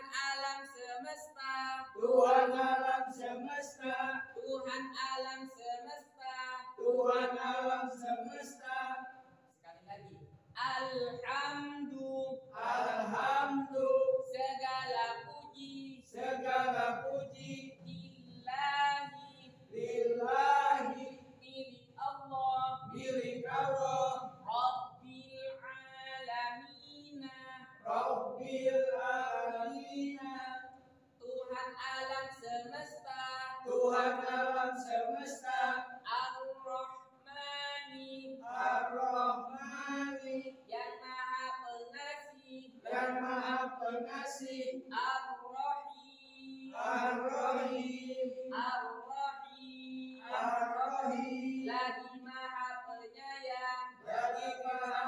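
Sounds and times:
men chanting verses: 2.0 - 4.2, 6.8 - 9.0, 12.5 - 14.0, 16.1 - 18.0, 19.7 - 21.2, 22.5 - 24.3, 27.8 - 30.5, 33.5 - 35.9, 38.4 - 40.4, 42.8 - 44.6, 46.6 - 48.2, 50.2 - 51.8, 54.0 - 55.0.

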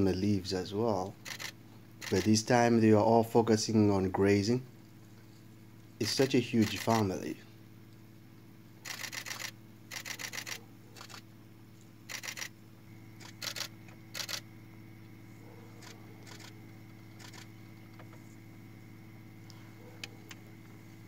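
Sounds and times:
steady low hum: 0.0 - 21.0
camera shutter clicking: 1.3 - 2.3, 6.6 - 7.0, 8.9 - 11.2, 12.1 - 12.5, 13.2 - 14.4.

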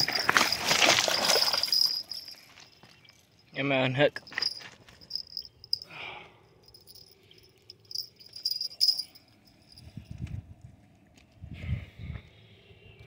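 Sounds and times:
insects chirping: 0.0 - 5.9, 6.5 - 9.8.

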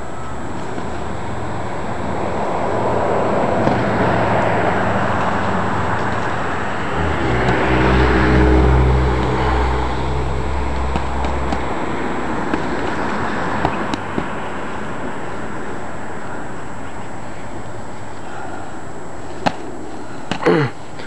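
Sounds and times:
vehicle rumble passing: 0.0 - 18.2
boxing gloves smacking: 10.9 - 11.7, 12.4 - 14.3.

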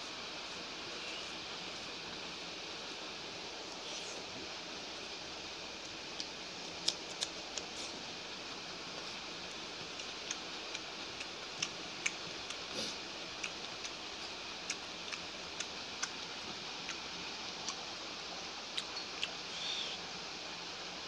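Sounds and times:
steady hiss: 0.0 - 21.0
chewing clicks and smacks: 6.2 - 7.7, 9.9 - 12.7, 13.4 - 14.0, 14.6 - 17.0.

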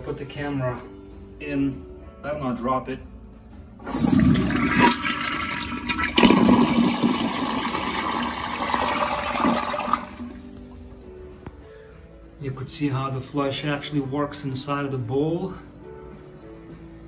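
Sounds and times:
toilet flushing: 3.8 - 11.0.

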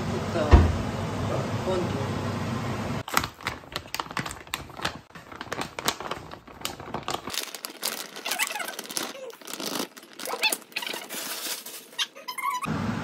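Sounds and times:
plastic bag crinkling: 3.0 - 12.7.

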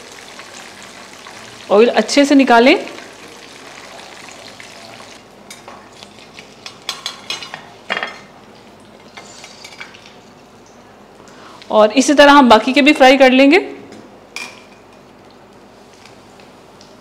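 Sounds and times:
hot oil sizzling: 0.0 - 7.4.

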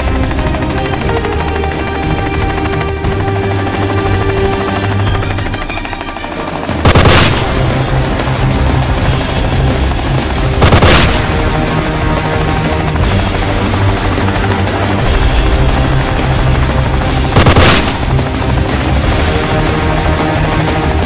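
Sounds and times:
helicopter rotor running: 0.0 - 21.0
automatic rifle fire: 6.8 - 7.7, 10.6 - 11.4, 17.4 - 18.2.

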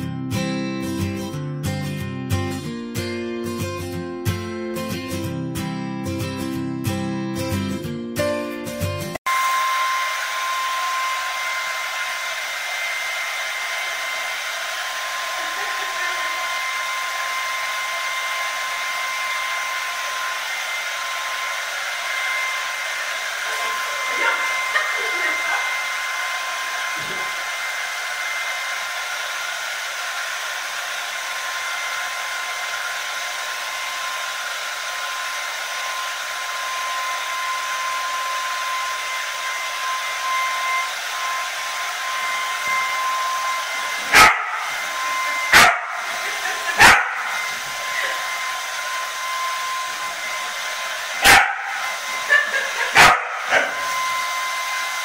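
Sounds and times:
hair dryer running: 9.2 - 55.0
dog barking: 23.5 - 25.3, 44.1 - 44.8, 45.5 - 47.4, 51.2 - 53.9.

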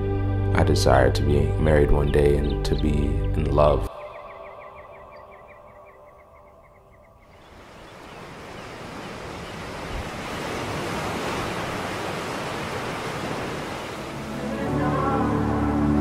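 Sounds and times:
sea waves washing onto shore: 7.6 - 15.0.

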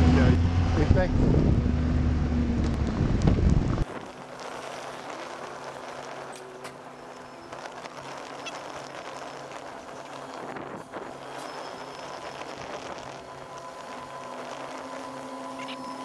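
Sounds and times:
wind on microphone: 0.0 - 4.1
vehicle engine and road noise: 0.0 - 16.0.

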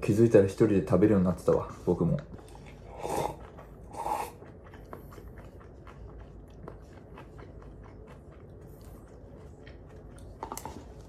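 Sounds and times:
quiet chewing: 1.3 - 11.0
person slurping noodles: 2.5 - 4.6.

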